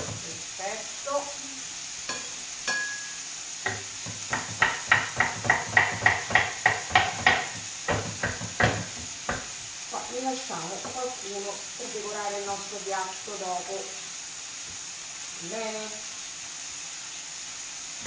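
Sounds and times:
frying pan sizzling: 0:00.0 - 0:18.0
knife chopping on wooden board: 0:03.7 - 0:09.6.

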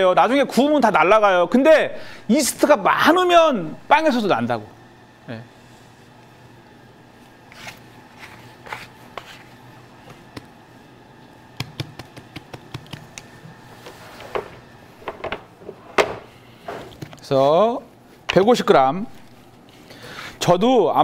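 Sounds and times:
low room hum: 0:00.0 - 0:21.0
dough taps and scrapes: 0:07.6 - 0:10.5, 0:11.6 - 0:13.3
sharp clicks and taps: 0:11.6 - 0:13.3.

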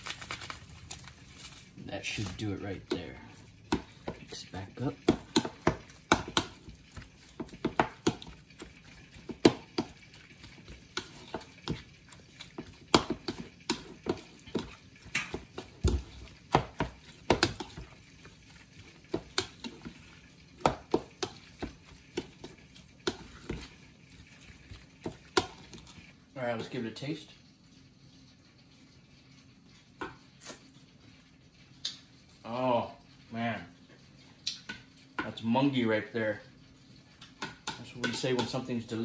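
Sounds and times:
metal spoon stirring in a bowl: 0:00.9 - 0:26.9, 0:37.4 - 0:38.9.

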